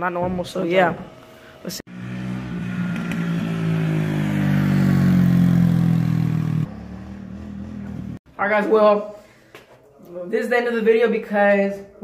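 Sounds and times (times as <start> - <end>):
motorbike engine passing: 1.8 - 8.2.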